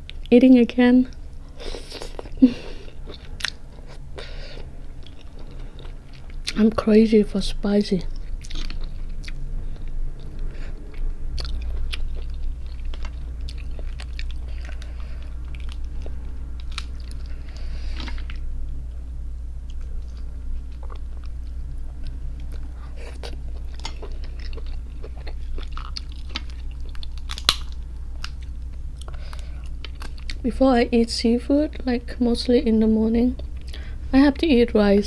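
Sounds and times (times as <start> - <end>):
steady low hum: 0.0 - 35.0
close chewing: 4.6 - 6.7, 8.1 - 18.5, 19.6 - 30.4
crab shell cracking: 25.4 - 28.4.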